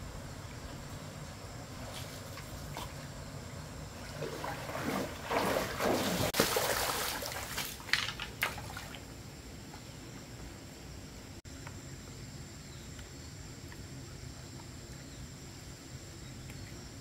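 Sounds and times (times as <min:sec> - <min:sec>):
legs wading through water: 0:01.7 - 0:09.1
sharp water splashes: 0:04.0 - 0:09.0.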